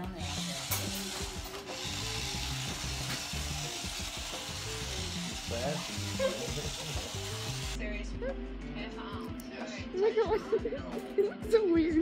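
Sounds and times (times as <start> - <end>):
floor robot motor hiss: 0.0 - 7.8
background music with bass: 0.0 - 12.0.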